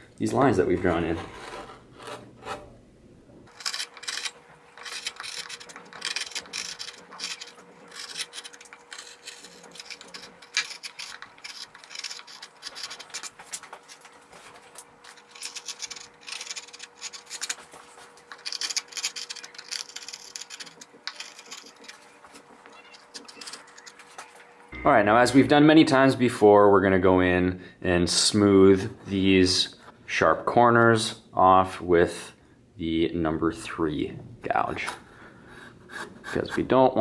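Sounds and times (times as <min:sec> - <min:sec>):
gouge scraping through wood: 0:00.8 - 0:02.7, 0:03.5 - 0:24.4.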